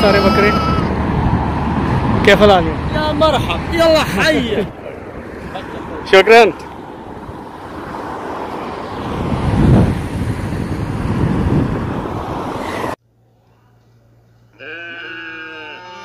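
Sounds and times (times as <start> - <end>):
wind buffeting microphone: 0.0 - 6.0, 6.7 - 13.0.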